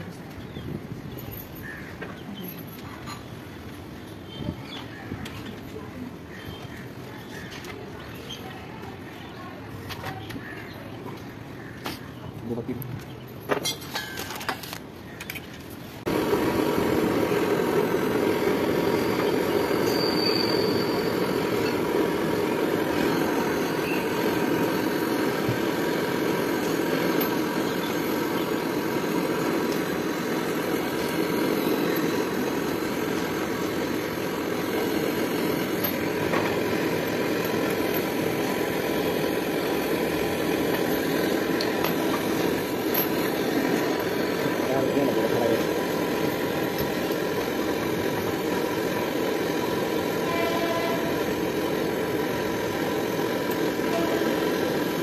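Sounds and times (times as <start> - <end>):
gas torch flame burning: 13.0 - 55.0.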